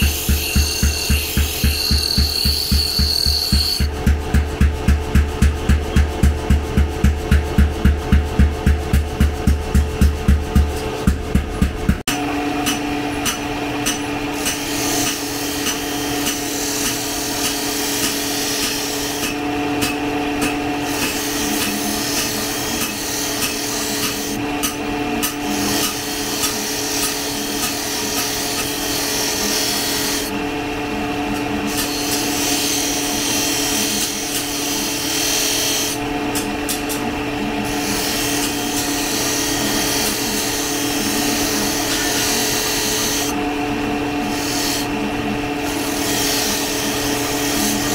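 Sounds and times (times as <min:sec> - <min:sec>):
steel grinding hiss: 0:00.0 - 0:03.9
grinder motor hum: 0:00.0 - 0:04.6.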